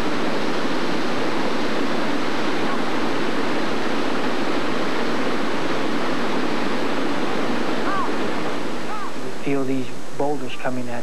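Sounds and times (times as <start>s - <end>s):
floodwater rushing: 0.0s - 11.0s.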